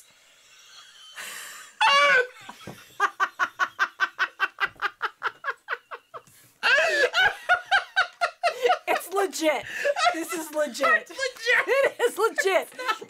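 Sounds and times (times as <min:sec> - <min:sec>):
man and woman laughing: 0:01.8 - 0:13.0
gasp: 0:09.6 - 0:10.0.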